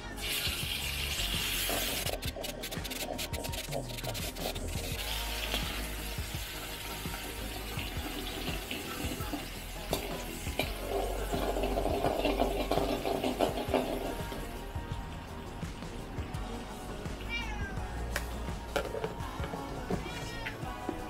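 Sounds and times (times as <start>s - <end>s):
garlic sizzling in hot oil: 0.0s - 14.7s.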